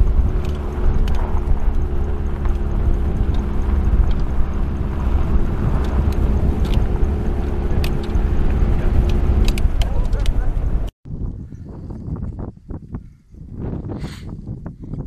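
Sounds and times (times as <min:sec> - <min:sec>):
car engine running: 0:00.0 - 0:10.9
wind rumble on microphone: 0:00.0 - 0:15.0.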